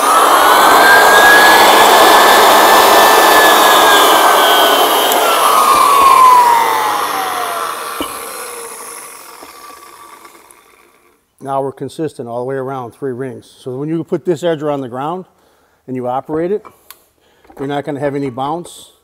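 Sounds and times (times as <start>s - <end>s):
motor whine: 0.0s - 11.1s
floor sander grinding: 0.0s - 11.2s.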